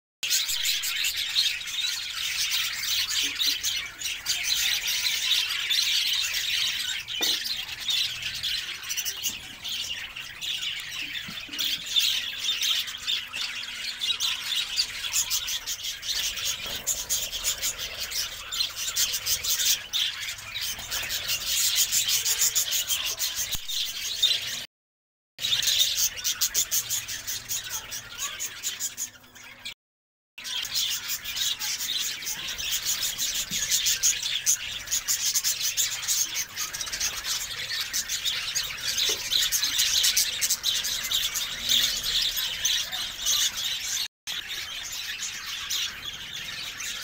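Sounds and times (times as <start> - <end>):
budgerigars chattering: 0.3 - 24.6.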